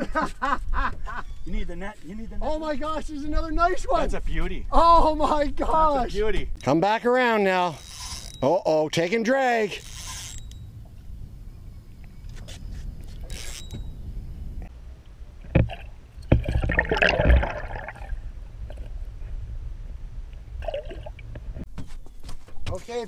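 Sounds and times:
low steady rumble: 13.8s - 21.6s
water splashing: 15.4s - 19.0s, 20.6s - 21.5s.

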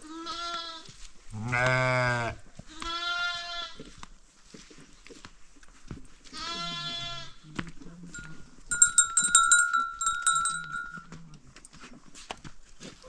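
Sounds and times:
lamb bleating: 0.0s - 3.9s, 6.3s - 7.4s
livestock bell clanking: 8.1s - 11.4s.

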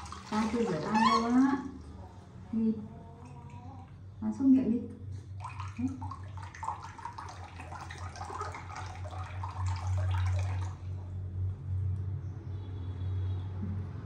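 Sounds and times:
tap water splashing into sink: 0.0s - 1.4s, 5.4s - 10.9s
steady low hum: 0.0s - 13.0s.

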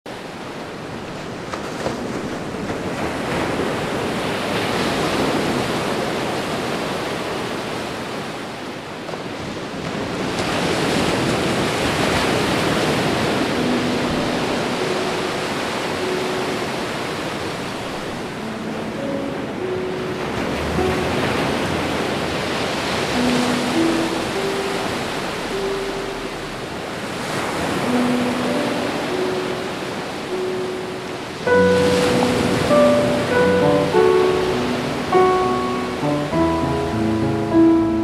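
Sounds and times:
ocean surf rushing: 0.1s - 38.0s
faint held musical notes: 27.9s - 38.0s.

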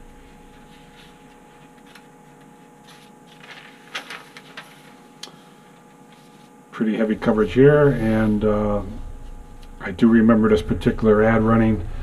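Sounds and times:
newspaper pages rustling: 0.0s - 6.6s
faint steady hum: 0.0s - 12.0s.

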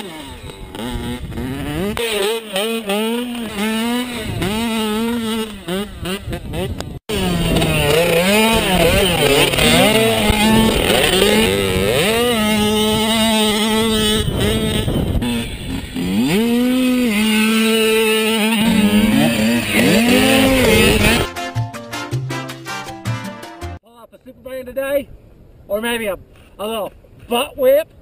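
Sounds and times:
dirt bike engine revving: 0.0s - 21.3s.

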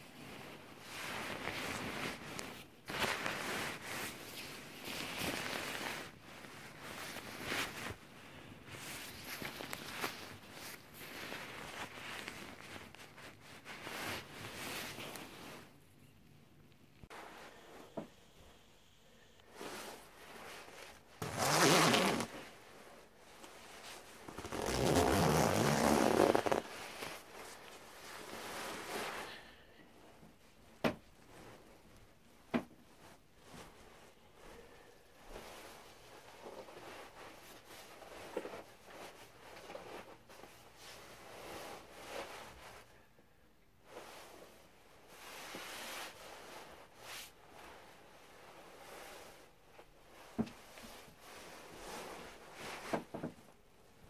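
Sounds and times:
nylon jacket rustling: 0.1s - 15.8s, 19.4s - 29.6s, 31.1s - 42.9s, 43.8s - 54.0s
jacket zipper rasping: 21.2s - 22.4s, 24.3s - 26.7s.

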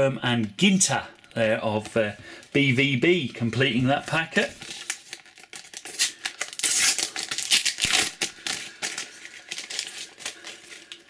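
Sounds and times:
paper packet tearing and crinkling: 3.9s - 11.0s.

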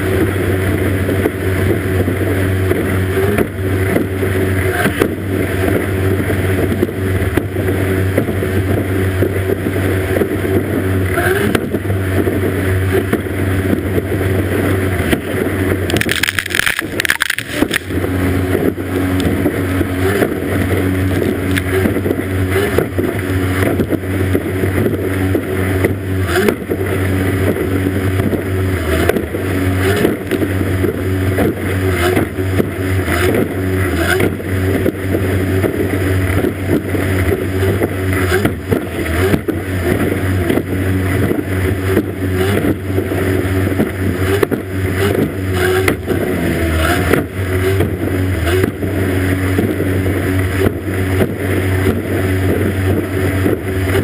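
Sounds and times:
outboard motor at high revs: 0.0s - 54.0s
rush of spray and wind: 0.0s - 54.0s
burst of water noise: 15.8s - 18.0s.

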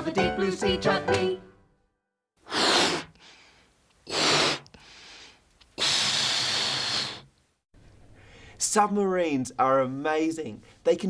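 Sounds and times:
gas hissing into a balloon: 2.4s - 3.2s, 4.1s - 4.7s, 5.8s - 7.3s.

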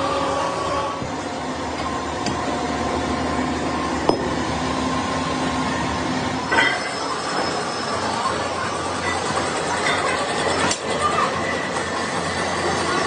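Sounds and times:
machinery running: 0.0s - 13.0s
metal clank with ringing: 6.5s - 7.8s.

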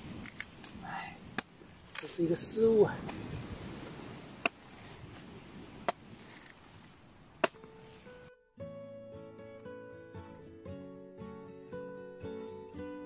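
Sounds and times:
cleaver chopping coconut: 4.4s - 4.6s, 5.9s - 6.5s, 7.4s - 7.7s
plucked guitar music: 7.6s - 13.0s.

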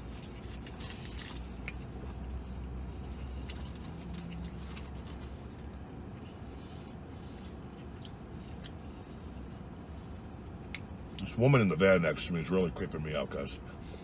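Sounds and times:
paper wrapper crinkling: 0.0s - 1.5s
chewing: 0.0s - 9.5s
low steady vehicle cabin hum: 0.0s - 14.0s.

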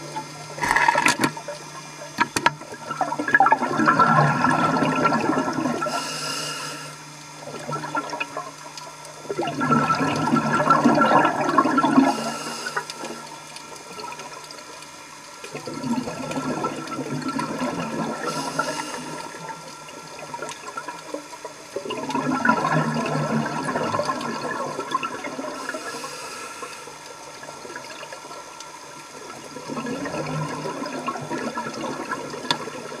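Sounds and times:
exhaled bubbles rushing: 2.7s - 5.9s, 7.4s - 12.4s, 15.5s - 21.1s, 21.7s - 25.8s, 29.2s - 33.0s
regulator inhale hiss: 5.8s - 7.0s, 12.0s - 13.3s, 18.2s - 19.5s, 25.5s - 27.1s.

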